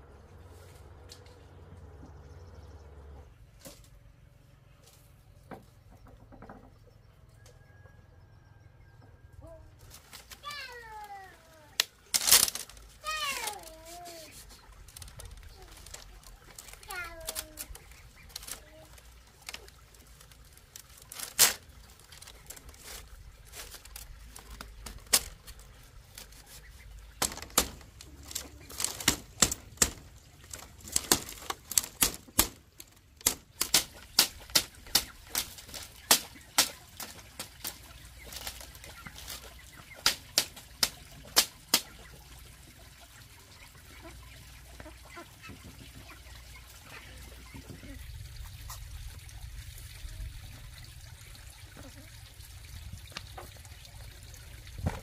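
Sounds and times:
machete chopping bamboo: 27.2 - 32.6, 33.2 - 37.7, 40.0 - 41.9.

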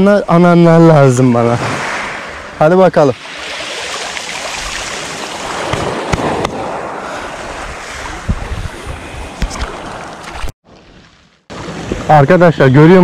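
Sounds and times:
water splashing around hand: 3.2 - 6.4, 7.9 - 10.5
small waves on pebble shore: 3.2 - 12.0.

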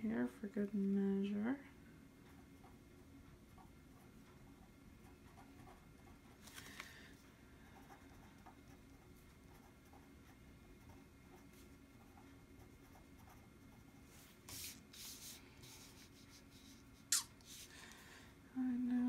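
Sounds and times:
pen scratching on paper: 5.3 - 6.4, 7.7 - 16.9.

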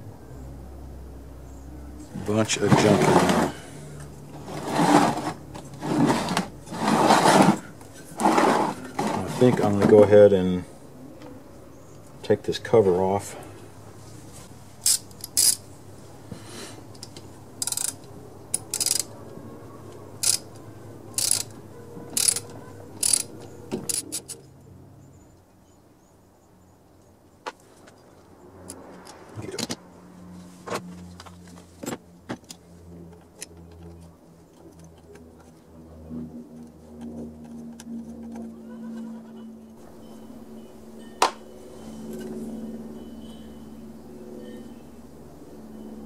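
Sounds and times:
ratchet clicking: 14.8 - 15.6, 17.0 - 19.1, 20.2 - 20.5, 21.1 - 21.5, 22.2 - 23.3, 23.9 - 24.4.

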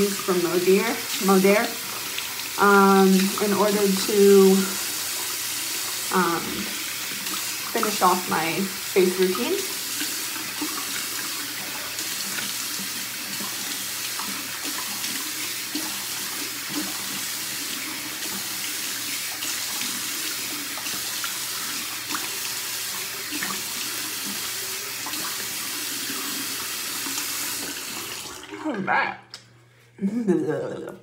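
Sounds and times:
splashes from rinsing: 0.0 - 28.8.

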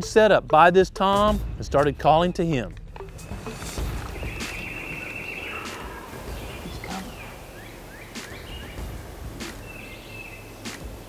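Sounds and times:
songbird chirps: 1.8 - 11.0
raspy turkey call: 4.3 - 8.7.

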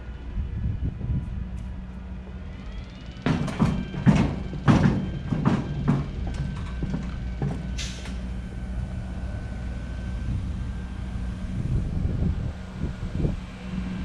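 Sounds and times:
steady low rumble: 0.0 - 14.0
footsteps clanging on metal ramp: 3.2 - 8.4.

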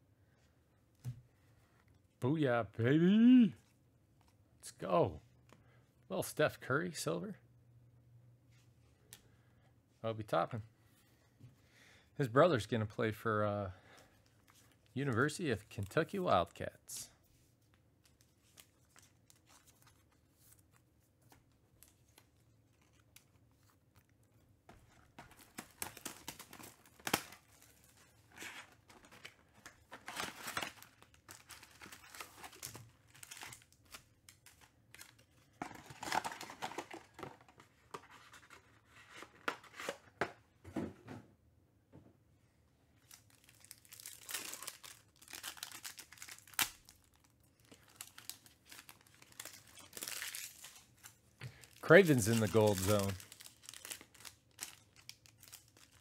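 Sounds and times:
foil pack tearing and crinkling: 25.2 - 37.1, 43.1 - 56.0
foil packs rustling: 43.0 - 56.0.

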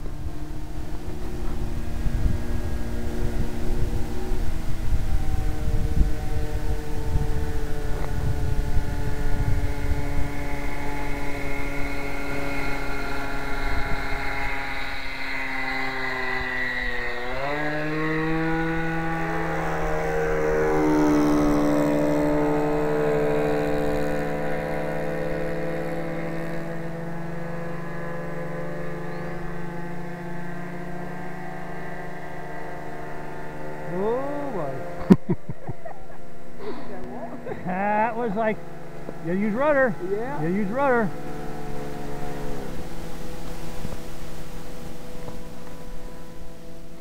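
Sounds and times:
wind rumble on microphone: 0.0 - 28.4, 41.1 - 47.0
model airplane motor buzzing: 0.0 - 47.0.

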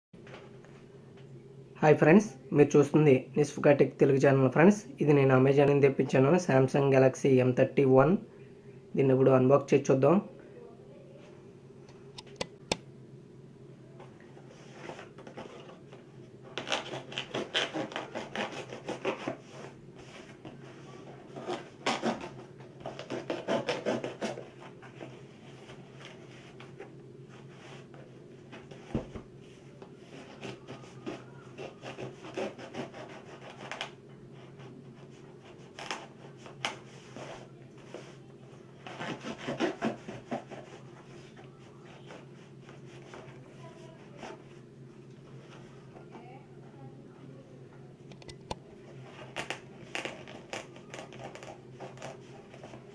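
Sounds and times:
steady low hum: 0.2 - 52.9
blade slitting tape and cardboard: 16.6 - 19.7, 21.4 - 24.7, 30.2 - 34.0, 35.4 - 37.4, 38.8 - 40.8, 49.2 - 52.8.

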